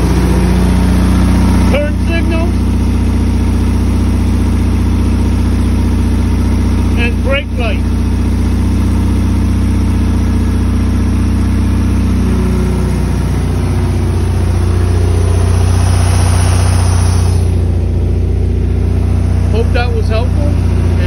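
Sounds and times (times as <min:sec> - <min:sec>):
car engine idling: 0:00.0 - 0:21.0.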